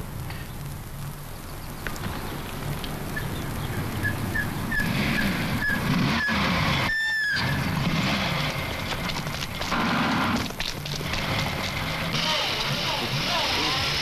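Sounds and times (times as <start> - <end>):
lorry engine running: 2.9 - 14.0.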